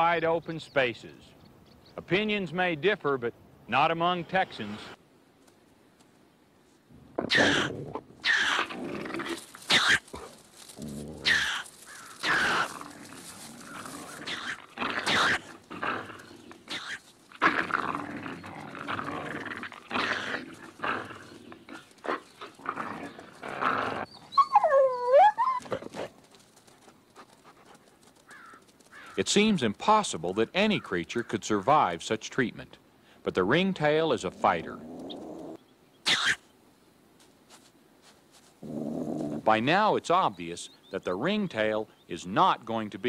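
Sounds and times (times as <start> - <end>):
animals snarling and growling: 7.0 - 26.2, 34.2 - 36.4, 38.6 - 39.5
animal squealing: 7.2 - 10.1, 11.0 - 17.7, 18.3 - 20.6.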